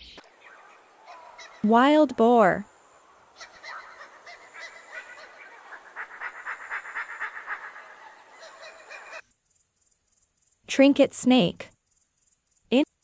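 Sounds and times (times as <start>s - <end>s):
high-pitched animal calls: 0.2s - 9.3s.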